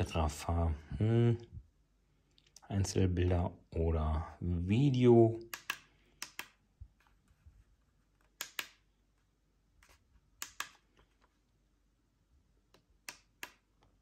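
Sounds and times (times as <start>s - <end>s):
keypad buttons clicking: 5.5s - 6.6s, 8.3s - 8.9s, 10.4s - 10.8s.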